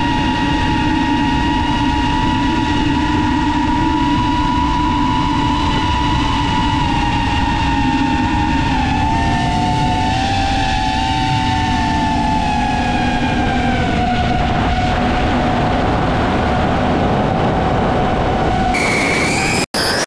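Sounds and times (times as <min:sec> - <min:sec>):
drone motors whining: 0:18.1 - 0:20.0.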